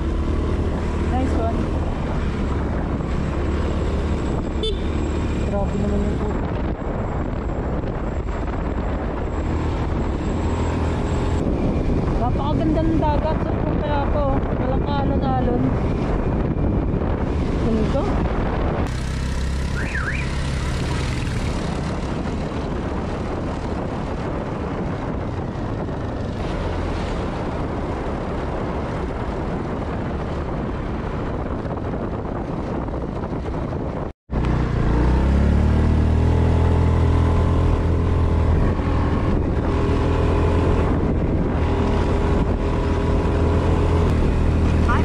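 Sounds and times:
motorcycle engine running: 0.0s - 10.3s, 11.6s - 30.6s
wind rushing on microphone: 0.0s - 45.0s.

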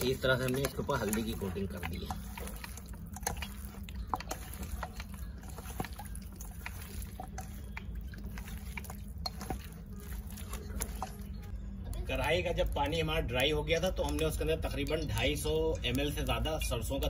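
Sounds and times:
wet squelching of chicken: 0.0s - 11.5s.

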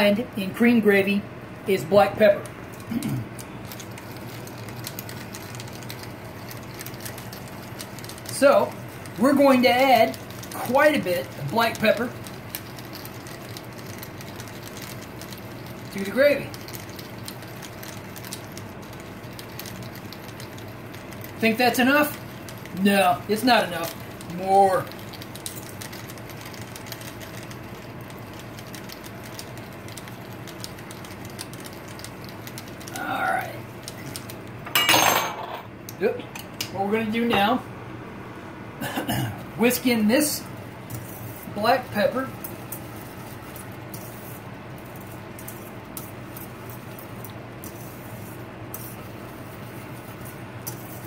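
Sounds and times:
pepper mill grinding: 2.1s - 34.8s, 40.4s - 51.0s
whisk scraping metal skillet: 40.9s - 51.0s.

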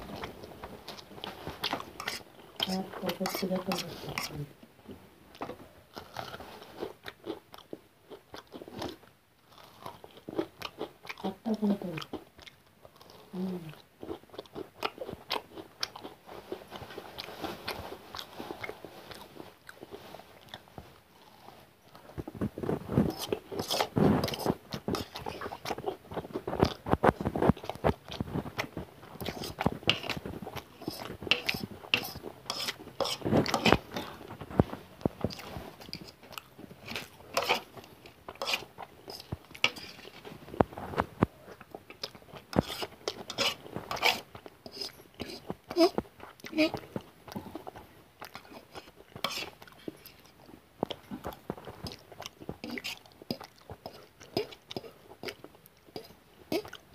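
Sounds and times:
person chewing food: 0.0s - 56.9s.

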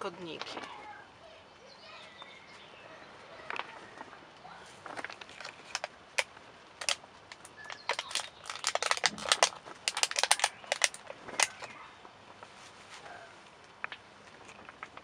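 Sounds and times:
plastic tray crackling and clicking: 4.8s - 11.8s.

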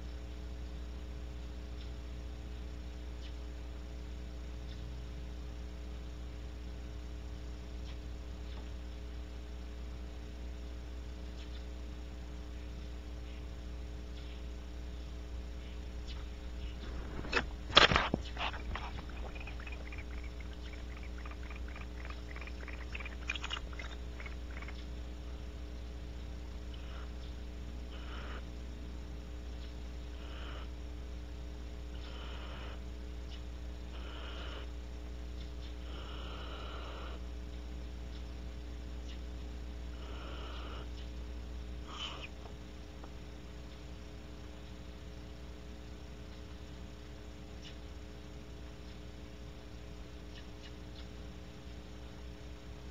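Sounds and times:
electrical mains hum: 0.0s - 52.9s
faint ticks: 1.7s - 2.1s, 7.7s - 9.1s, 15.6s - 25.0s
owls hissing snore calls: 18.0s - 24.8s, 26.7s - 27.2s, 27.9s - 28.5s, 30.1s - 30.8s, 31.9s - 32.9s, 33.9s - 34.8s, 35.8s - 37.3s, 39.9s - 40.9s, 41.8s - 42.4s.

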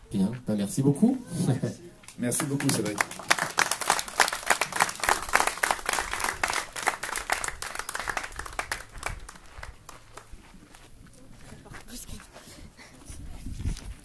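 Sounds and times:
audience applauding: 2.2s - 10.3s.

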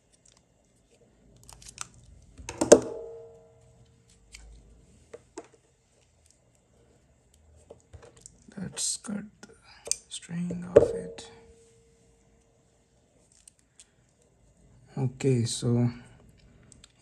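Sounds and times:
sharp ringing knock: 2.7s - 3.5s, 10.7s - 11.6s.

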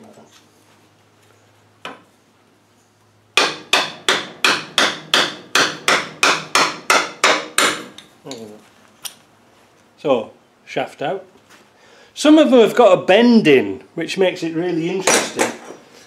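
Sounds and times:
hammer blows ringing on metal: 3.4s - 7.9s.

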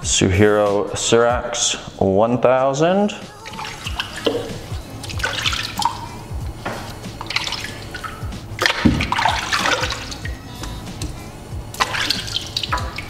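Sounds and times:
water splashing and dripping: 3.3s - 13.0s.

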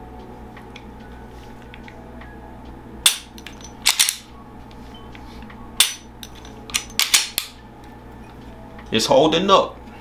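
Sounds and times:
gun slide clacking: 3.6s - 4.2s, 6.3s - 7.5s.

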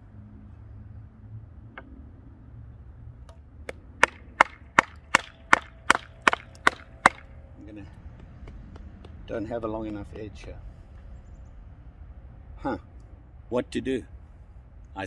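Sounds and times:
sharp wooden knocks: 3.3s - 7.4s, 8.1s - 10.2s.

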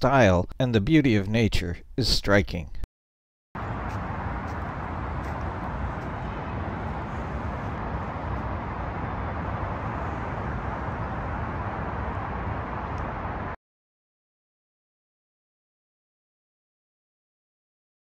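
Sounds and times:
highway traffic rumble and hiss: 3.6s - 13.6s.

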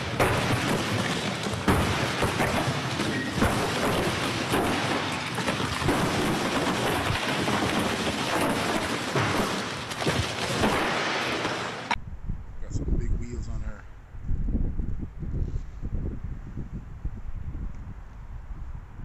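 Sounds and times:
wind buffeting microphone: 12.0s - 19.0s.

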